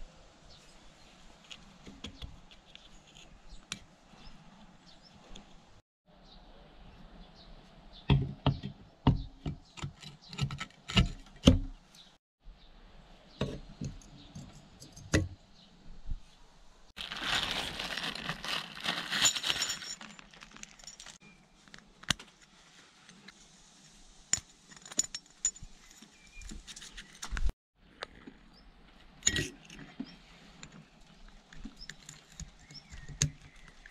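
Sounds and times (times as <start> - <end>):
metallic jingling rattle: 19.1 - 21.2.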